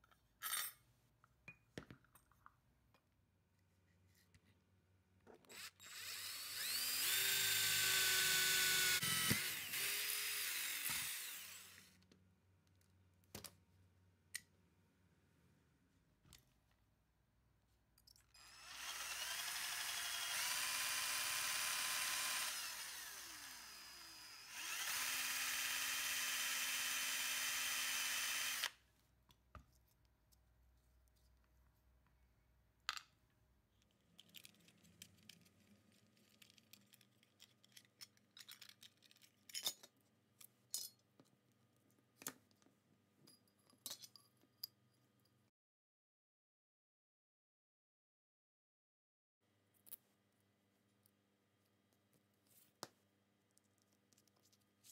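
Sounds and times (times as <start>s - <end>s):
electric power drill running: 5.5s - 12.0s, 18.4s - 28.8s.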